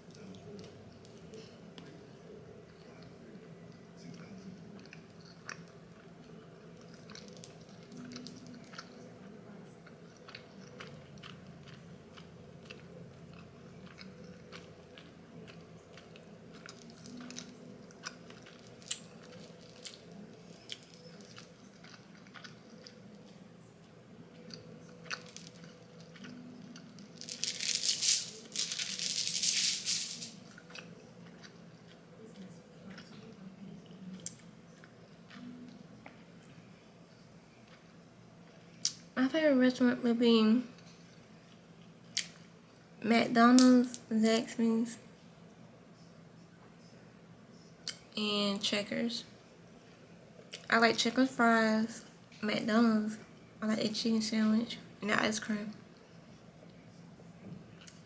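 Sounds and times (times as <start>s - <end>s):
person chewing food: 4.1s - 23.4s, 24.3s - 27.5s
loud rustling: 27.2s - 30.4s.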